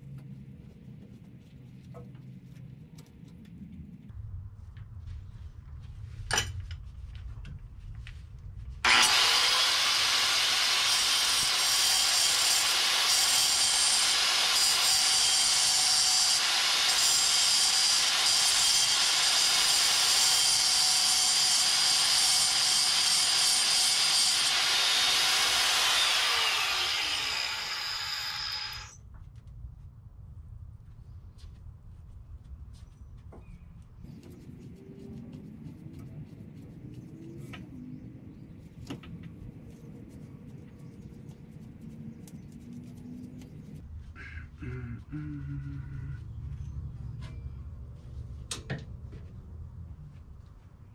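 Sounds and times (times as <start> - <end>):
power tool grinding metal: 8.9 - 29.0.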